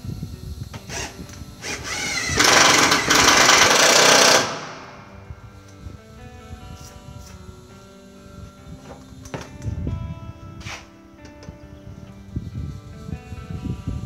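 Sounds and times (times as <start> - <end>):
cordless drill driving screw: 0.7 - 5.0.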